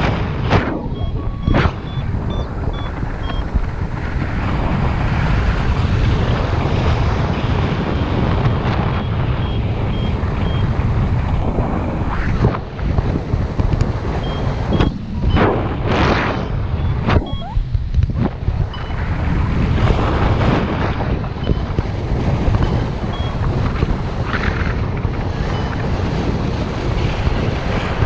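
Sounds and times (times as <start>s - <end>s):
strong wind buffeting microphone: 0.0s - 28.0s
faint high variometer beeps: 0.8s - 3.6s, 9.0s - 10.8s, 14.1s - 15.5s, 16.7s - 17.8s, 18.7s - 19.1s, 21.3s - 21.8s, 22.5s - 23.5s, 25.5s - 25.9s.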